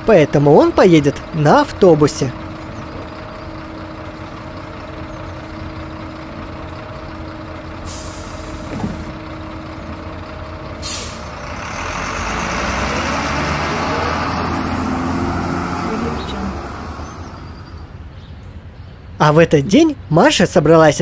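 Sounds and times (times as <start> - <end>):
bus engine idling: 0.0 - 19.2
air brakes hissing: 7.8 - 9.1, 10.8 - 11.4.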